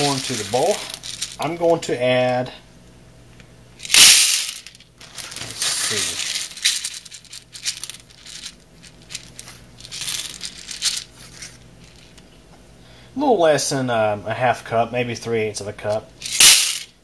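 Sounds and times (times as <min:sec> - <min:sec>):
popcorn kernels clattering into bowl: 0:00.0 - 0:01.6, 0:03.8 - 0:11.1, 0:16.2 - 0:17.0
kernels rattling and rustling: 0:00.0 - 0:02.4, 0:03.8 - 0:12.2, 0:16.2 - 0:17.0.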